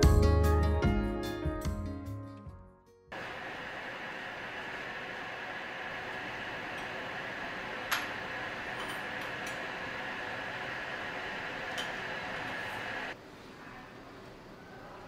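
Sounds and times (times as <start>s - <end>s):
steady fan-like hiss: 3.1s - 15.0s.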